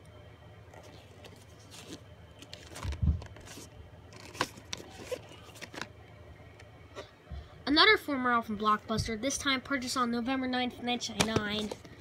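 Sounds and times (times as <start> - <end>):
cassette rustling and scraping: 0.7 - 6.0, 11.1 - 12.0.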